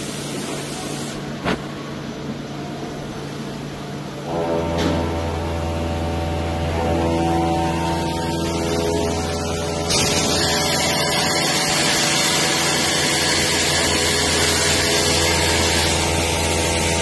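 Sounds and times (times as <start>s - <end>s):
strong steady hiss: 0.0s - 2.0s
boring machine humming: 0.0s - 17.0s.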